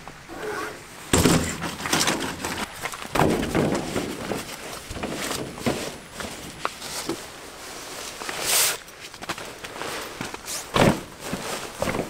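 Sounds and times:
metal frame clattering and scraping: 0.3 - 7.2
fabric rustling: 0.4 - 12.0
heavy thump of camp cot: 1.1 - 2.6, 3.2 - 6.4, 10.7 - 12.0.

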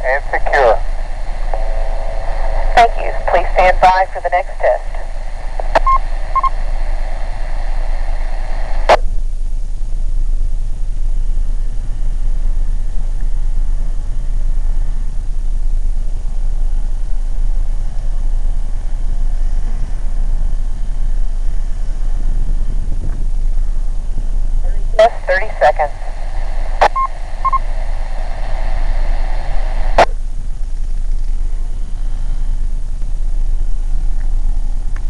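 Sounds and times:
two-way radio hiss: 0.0 - 9.0, 24.6 - 30.1
steady low rumble: 0.0 - 35.0
radio click: 2.3 - 6.5.

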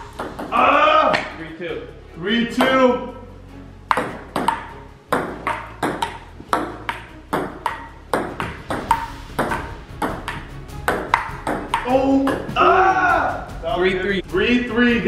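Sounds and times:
table tennis ball hitting paddles: 0.0 - 1.4, 3.9 - 12.6
ball bouncing on table: 0.2 - 1.3, 3.9 - 12.5.

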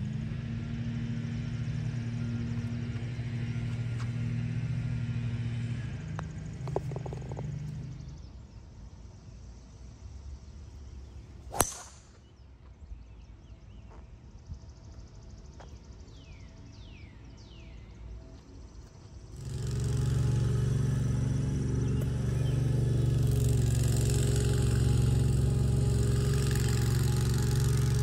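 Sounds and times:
birds chirping: 10.5 - 28.0
golf club striking ball: 11.5 - 12.2
motor humming: 19.4 - 28.0.

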